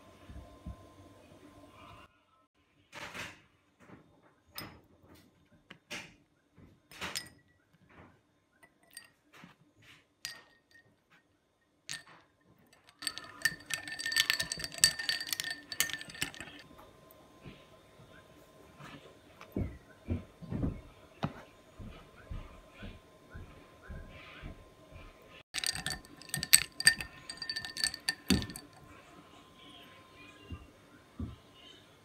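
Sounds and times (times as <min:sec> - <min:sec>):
metal spoon clinking glass bowl: 0:07.0 - 0:07.5, 0:08.6 - 0:09.2, 0:10.3 - 0:10.9, 0:11.9 - 0:16.6, 0:25.6 - 0:28.8
spoon stirring ice cubes: 0:08.6 - 0:09.1, 0:11.9 - 0:16.6, 0:25.6 - 0:28.8.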